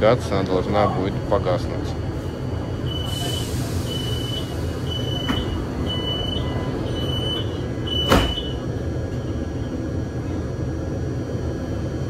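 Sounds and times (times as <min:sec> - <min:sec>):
train low rumble: 0:00.0 - 0:12.0
door warning beeps: 0:02.9 - 0:08.6
sliding doors shutting thud: 0:08.0 - 0:08.5.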